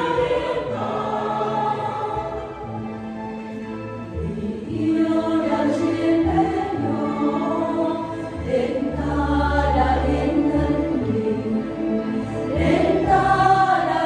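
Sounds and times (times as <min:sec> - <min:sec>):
mixed choir singing a hymn: 0:00.0 - 0:03.0, 0:04.2 - 0:14.0.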